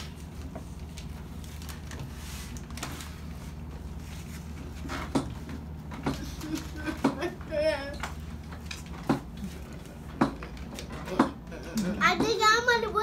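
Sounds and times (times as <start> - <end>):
paper packets rustling: 0.0 - 7.6.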